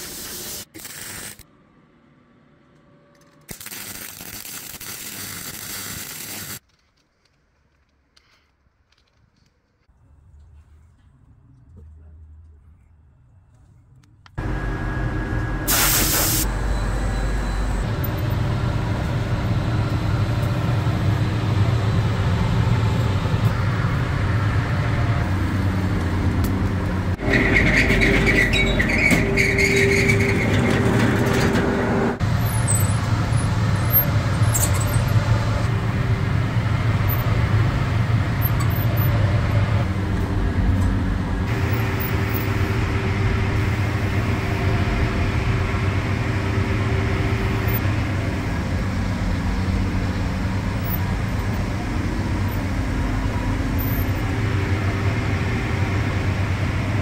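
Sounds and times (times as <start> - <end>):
high-pitched whine: 14.4 - 25.4, 41.4 - 57.0
workshop machinery humming: 14.4 - 57.0
short hiss: 15.7 - 16.5.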